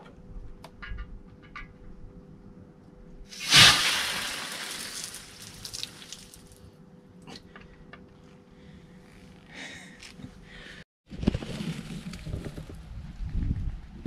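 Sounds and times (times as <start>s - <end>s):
loud hiss and spray from tank: 3.3s - 5.5s.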